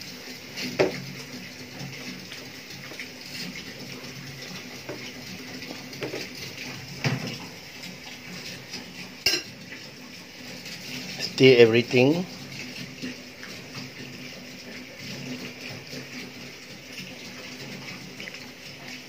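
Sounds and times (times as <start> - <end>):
metal utensil clinking on pot: 9.2 - 9.5.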